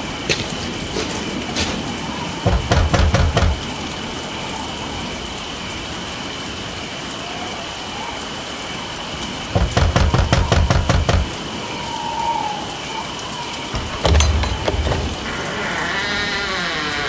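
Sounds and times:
steady rain-like hiss: 0:00.0 - 0:17.0
rapid heavy thuds: 0:02.5 - 0:03.7, 0:09.6 - 0:11.4.

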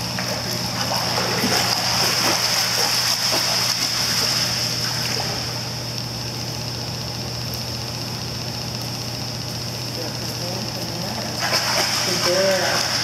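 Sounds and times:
low machine hum and hiss: 0:00.0 - 0:13.0
water splashing: 0:00.2 - 0:05.6, 0:11.4 - 0:13.0.

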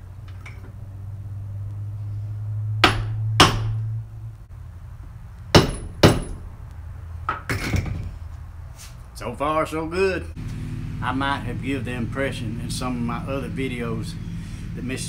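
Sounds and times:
hammer striking metal hub: 0:02.8 - 0:03.8, 0:05.6 - 0:06.4.

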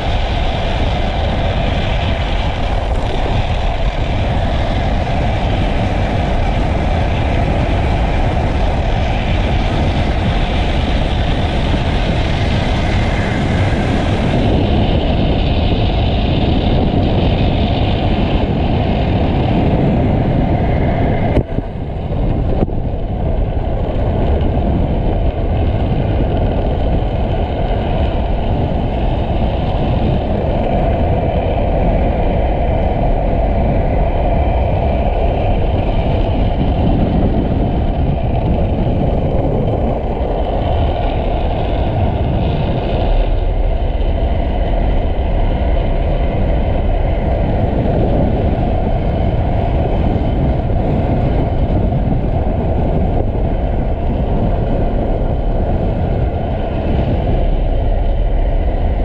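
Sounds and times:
hard wheels rolling on asphalt: 0:00.0 - 0:59.0
wind rushing over microphone: 0:00.0 - 0:59.0.

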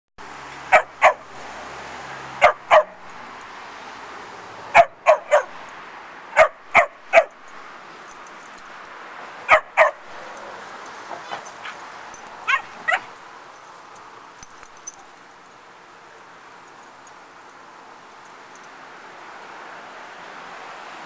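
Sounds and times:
puppies barking: 0:00.6 - 0:01.6, 0:02.3 - 0:03.4, 0:04.7 - 0:05.7, 0:06.4 - 0:07.6, 0:09.5 - 0:13.3.

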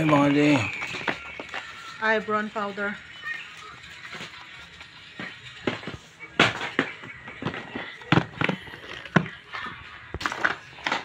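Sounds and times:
boxes and cases knocking: 0:05.2 - 0:09.4.

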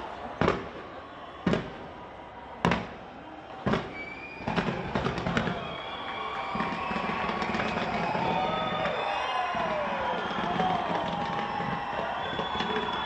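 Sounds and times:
fireworks bangs: 0:00.2 - 0:02.0, 0:02.6 - 0:03.0, 0:03.6 - 0:13.0
fireworks crackling pops: 0:03.7 - 0:13.0.

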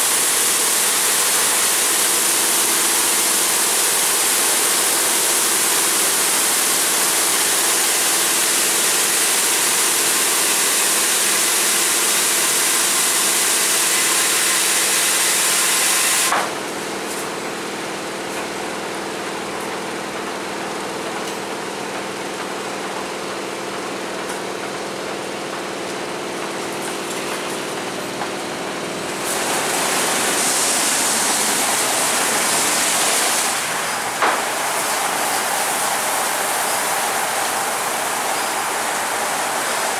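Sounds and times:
wash machinery hum: 0:13.4 - 0:39.9
car wash spraying water: 0:26.6 - 0:39.9.

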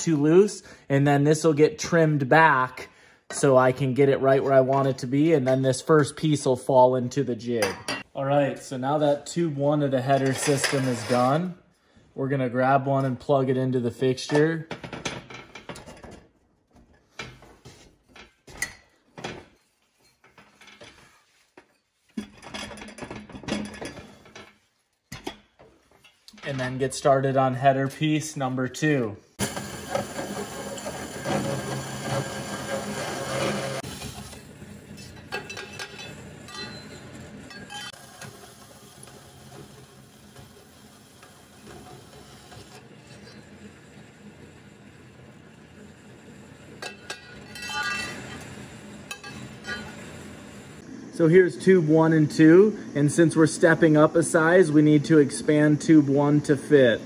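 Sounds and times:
metal tube clinking: 0:46.8 - 0:48.4.

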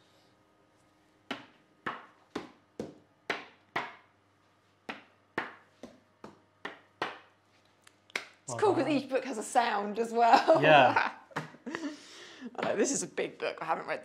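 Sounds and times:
hand tapping books: 0:01.3 - 0:04.0, 0:04.8 - 0:07.3.

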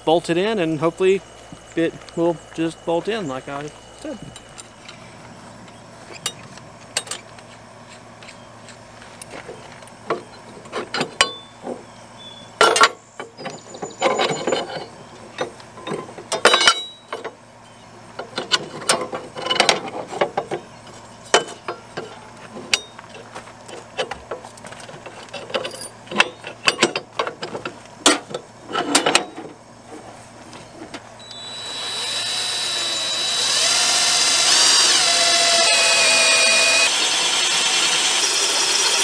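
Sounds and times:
metal clinks and knocks: 0:12.6 - 0:17.4, 0:21.3 - 0:29.5.

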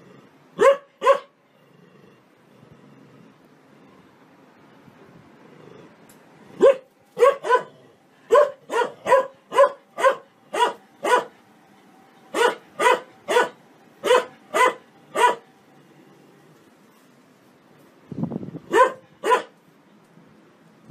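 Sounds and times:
large dog barking: 0:00.6 - 0:01.4, 0:06.6 - 0:11.4, 0:12.3 - 0:15.5, 0:18.7 - 0:19.6.

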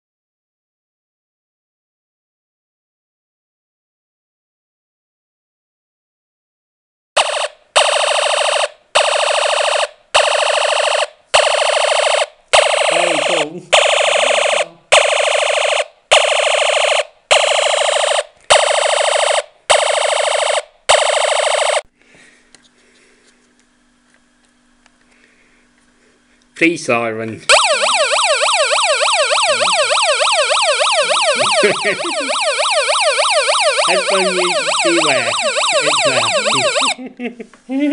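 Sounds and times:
pulsing buzzing alarm: 0:07.2 - 0:21.8, 0:27.5 - 0:37.0.

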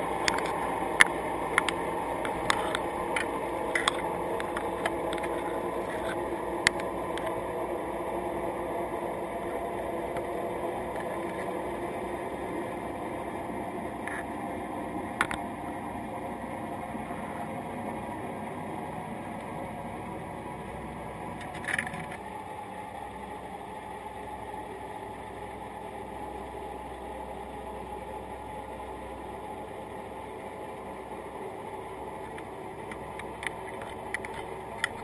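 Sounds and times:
underwater noise: 0:00.0 - 0:14.5.

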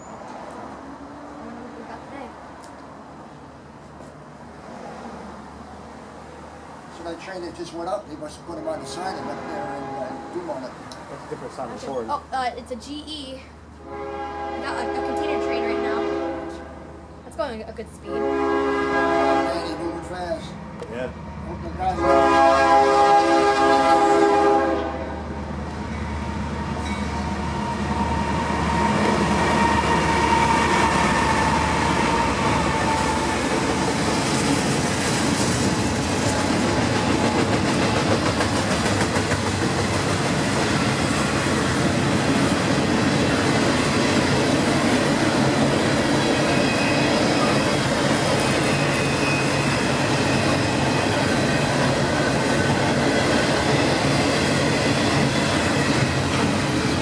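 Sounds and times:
diesel locomotive horn: 0:08.6 - 0:10.6, 0:13.8 - 0:17.0, 0:18.1 - 0:20.1, 0:21.6 - 0:25.3, 0:27.5 - 0:34.0
steel wheels rolling on rail: 0:20.4 - 0:57.0.

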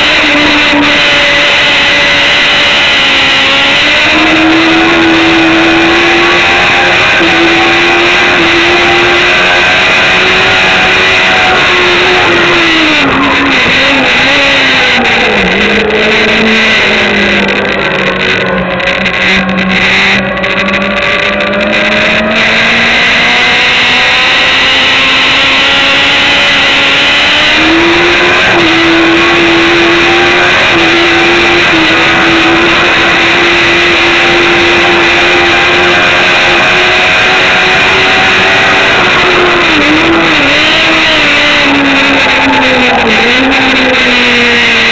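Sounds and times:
motorcycle engine revving: 0:00.0 - 0:44.9.

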